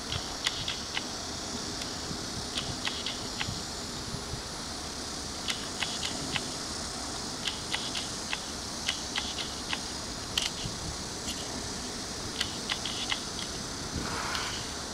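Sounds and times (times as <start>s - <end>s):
steady hiss: 0.0s - 14.9s
lens mechanism clicks and ticks: 0.1s - 1.1s, 10.4s - 10.7s.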